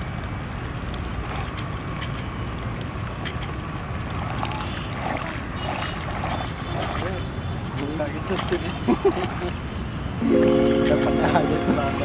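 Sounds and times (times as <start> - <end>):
paddle wheels splashing through water: 0.0 - 12.0.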